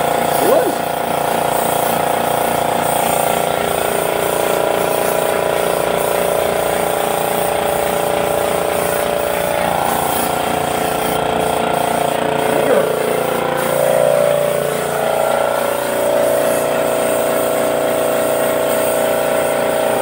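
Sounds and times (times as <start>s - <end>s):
air compressor pulsing hum: 0.0s - 20.0s
spray gun hissing: 0.0s - 20.0s.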